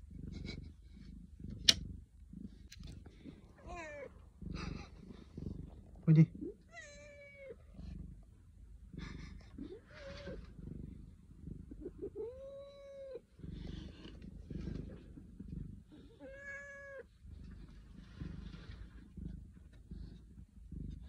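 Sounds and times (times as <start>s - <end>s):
cat meowing: 16.2s - 17.0s.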